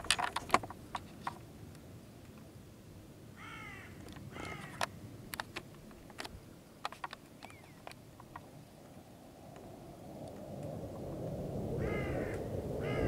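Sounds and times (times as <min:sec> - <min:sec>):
faint outdoor background: 0:00.0 - 0:13.0
bird calling: 0:03.4 - 0:05.0, 0:07.4 - 0:08.4, 0:11.8 - 0:13.0.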